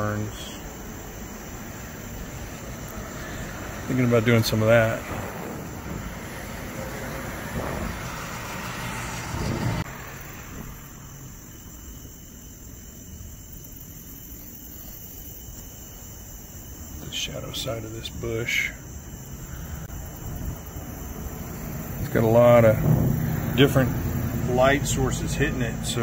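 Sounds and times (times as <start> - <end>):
passing vehicle: 0.0 - 12.2, 17.5 - 26.0
crickets chirping: 0.0 - 26.0.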